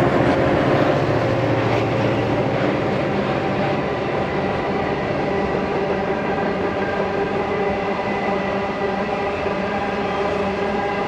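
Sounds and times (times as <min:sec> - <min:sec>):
humming drone: 0:00.0 - 0:11.0
train wheels rumbling on rails: 0:00.0 - 0:11.0.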